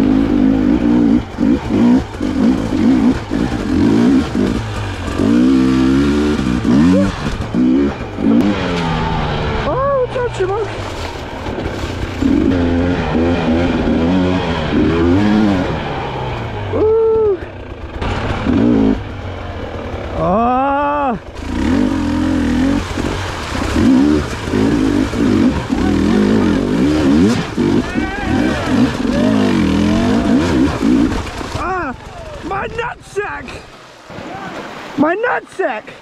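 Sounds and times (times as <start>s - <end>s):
dirt bike engine revving: 0.0s - 33.0s.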